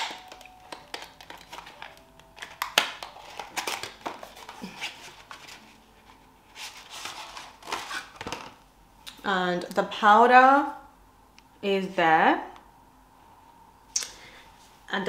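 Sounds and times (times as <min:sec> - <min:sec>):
cardboard rustling and crinkling: 0:00.3 - 0:08.6.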